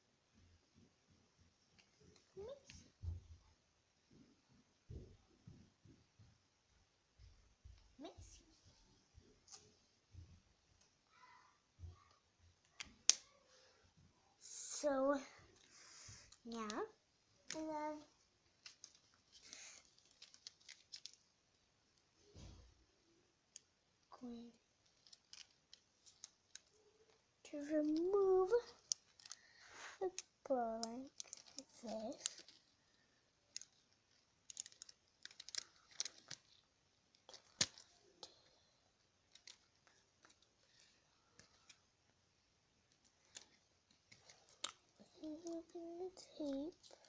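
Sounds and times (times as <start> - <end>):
paper rustling and clicking: 15.6 - 21.3, 23.6 - 41.9, 42.9 - 47.0.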